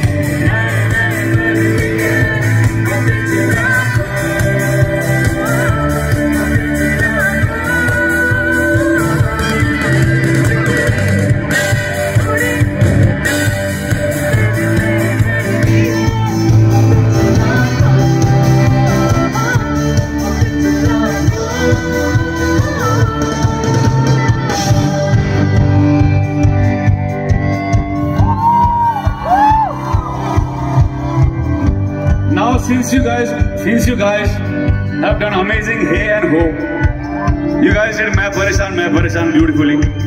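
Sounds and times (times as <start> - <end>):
vocalists singing together: 0.0 - 11.1, 14.3 - 25.6
bass guitar: 0.0 - 40.0
drums: 0.0 - 40.0
guitar: 0.0 - 40.0.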